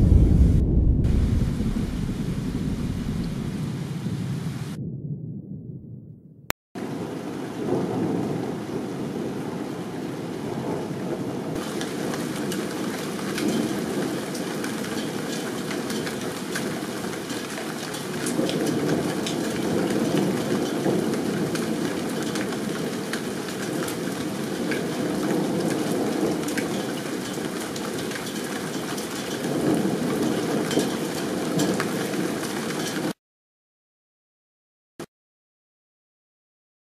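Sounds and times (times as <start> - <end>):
heavy rain falling: 0.0 - 4.8, 6.8 - 33.2
thunder rumbling: 0.0 - 33.2
raindrops ticking on surfaces: 6.8 - 33.2.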